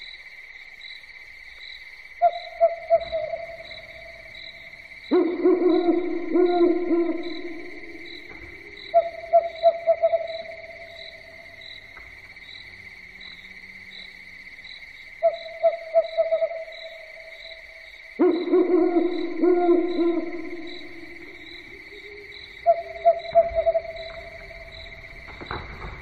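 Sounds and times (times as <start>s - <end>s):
insects trilling: 0.0s - 26.0s
owl hooting: 2.2s - 11.6s, 15.2s - 17.6s, 18.2s - 24.8s.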